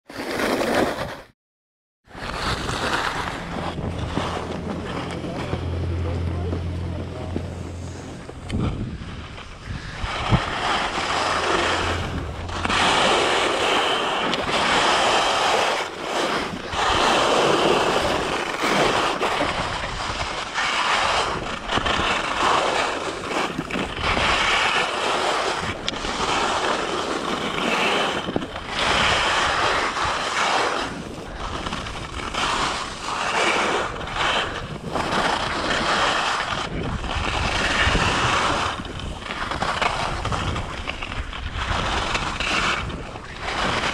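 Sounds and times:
skis scraping over snow: 0:00.1 - 0:01.3, 0:02.1 - 0:43.9
wind on microphone: 0:02.1 - 0:43.9.

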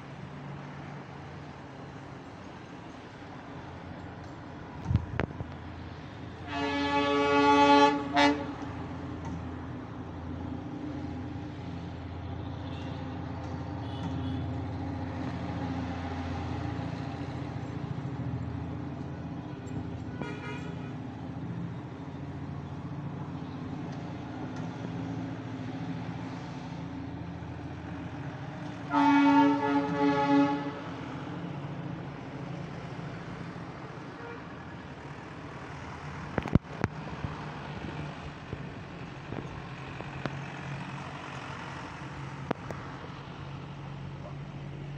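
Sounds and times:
train whistle: 0:06.4 - 0:08.6, 0:28.9 - 0:30.9.

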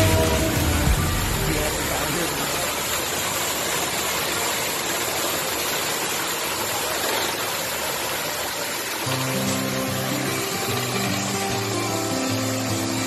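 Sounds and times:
background music: 0:00.0 - 0:02.4, 0:09.1 - 0:13.0
falling water rushing hiss: 0:00.0 - 0:13.0.

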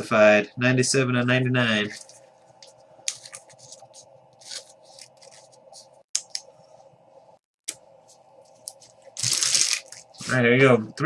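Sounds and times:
faint steady hum: 0:00.0 - 0:11.0
cards scratching and sliding: 0:03.1 - 0:05.8.

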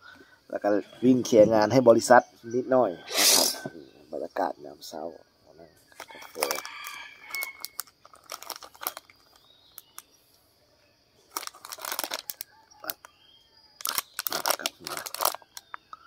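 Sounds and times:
plastic wrapper crinkling: 0:06.0 - 0:10.0, 0:11.3 - 0:13.0, 0:13.8 - 0:15.8.

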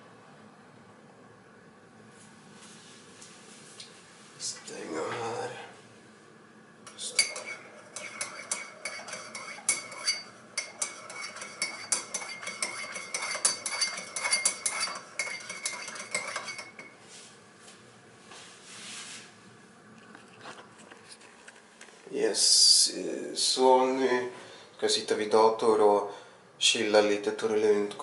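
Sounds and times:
spoon clinking in mug: 0:06.9 - 0:16.9.

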